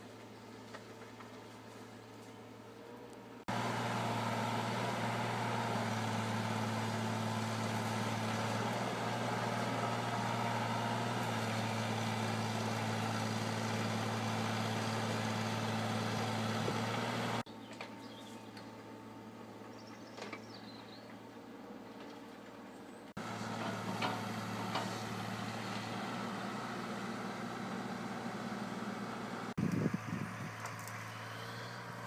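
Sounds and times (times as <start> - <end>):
diesel engine droning: 0.7 - 17.5, 23.2 - 32.0.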